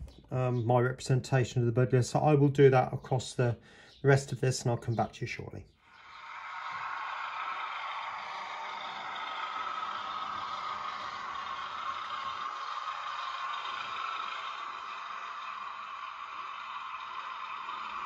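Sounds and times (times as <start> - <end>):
model train diesel engine sound: 0.0 - 18.0
model train wheels on track: 5.8 - 18.0.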